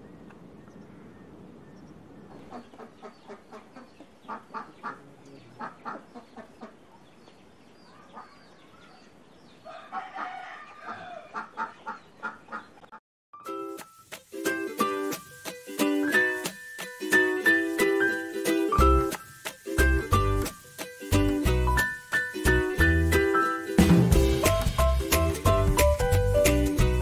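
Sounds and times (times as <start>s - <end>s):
low steady outdoor noise: 0.0s - 13.0s
poultry calling: 2.3s - 7.0s, 7.9s - 12.9s.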